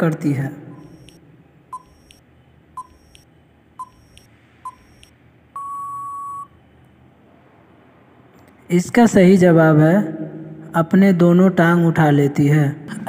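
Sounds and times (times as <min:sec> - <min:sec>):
long electronic beep: 0:00.7 - 0:02.2, 0:02.8 - 0:06.6
electronic countdown beeps: 0:00.7 - 0:06.5.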